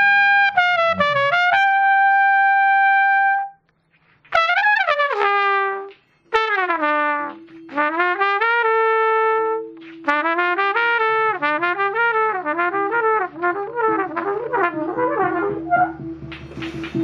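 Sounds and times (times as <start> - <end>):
trumpet playing: 0.0 - 3.6, 4.3 - 16.3.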